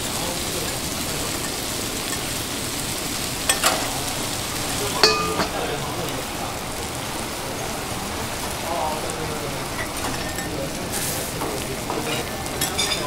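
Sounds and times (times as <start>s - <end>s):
food sizzling on a griddle: 0.0s - 13.0s
background voices: 3.6s - 13.0s.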